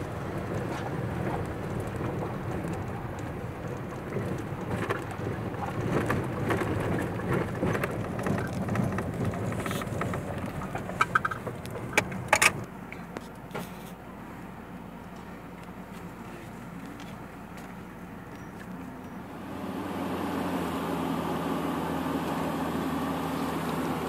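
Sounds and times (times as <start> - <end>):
gravel rattles and clicks: 0.0 - 19.3
engine and tyre rumble: 0.0 - 24.0.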